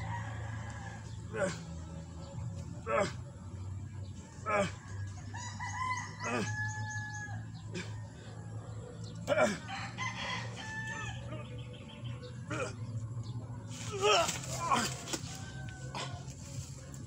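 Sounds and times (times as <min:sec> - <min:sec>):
rooster crowing: 0:05.3 - 0:07.5, 0:09.5 - 0:11.5, 0:14.9 - 0:16.4.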